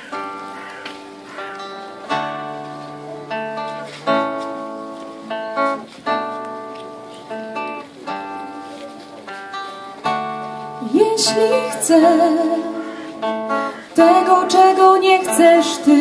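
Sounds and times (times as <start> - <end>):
acoustic guitars strumming chords: 0.0 - 16.0.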